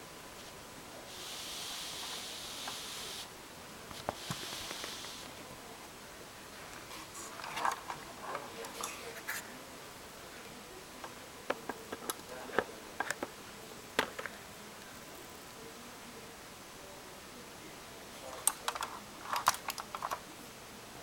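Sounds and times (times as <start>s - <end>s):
soft rustling: 0.3s - 5.6s, 6.4s - 11.2s.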